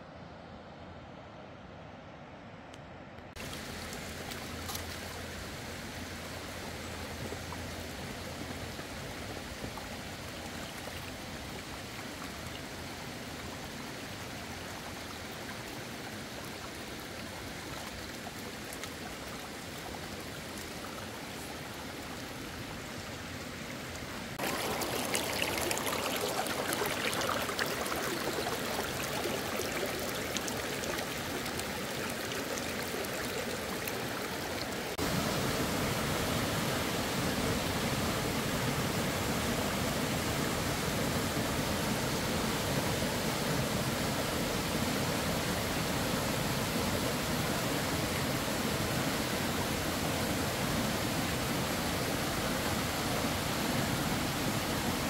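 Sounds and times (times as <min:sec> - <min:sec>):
brook trickling over stones: 0:03.4 - 0:35.1.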